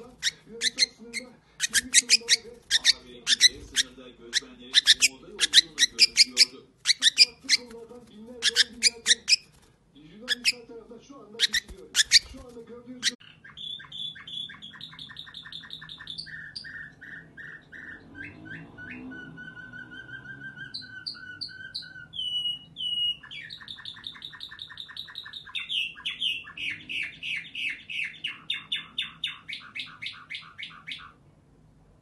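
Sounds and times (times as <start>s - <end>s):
canary singing trills: 0.0s - 7.8s, 8.4s - 9.6s, 10.2s - 10.8s, 11.4s - 31.2s.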